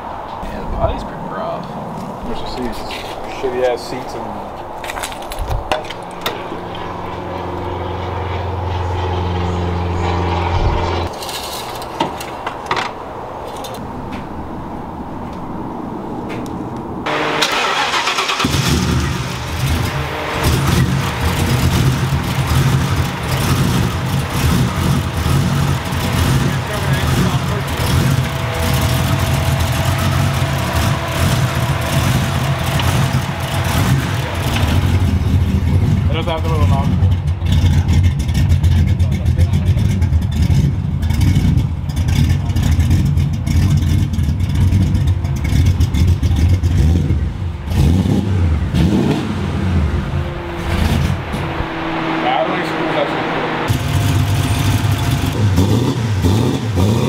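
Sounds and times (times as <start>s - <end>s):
car engine idling: 16.5s - 56.9s.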